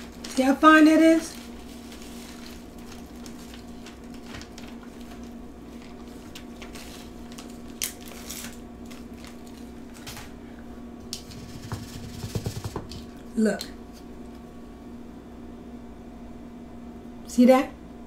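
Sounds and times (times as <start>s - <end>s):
plastic bag crinkling: 0.0s - 10.4s
faint steady hum: 0.0s - 18.0s.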